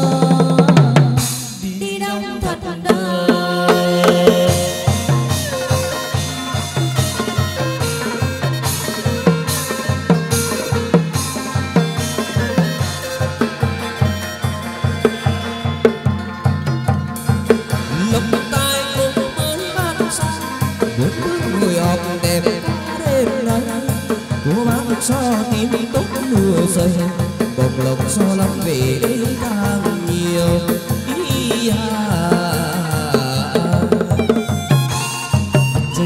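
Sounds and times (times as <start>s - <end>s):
person singing: 0.0s - 7.8s, 17.7s - 34.5s
quick drum beat: 0.0s - 36.0s.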